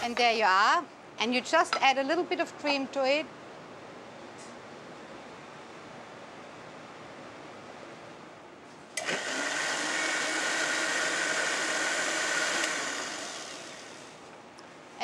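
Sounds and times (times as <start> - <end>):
countertop blender running: 9.0 - 14.2.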